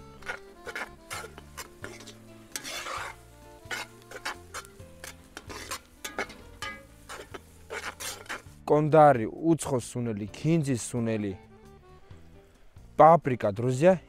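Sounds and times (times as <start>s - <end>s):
metal spoon scraping frying pan: 0.0s - 8.6s
food sizzling: 0.0s - 8.7s.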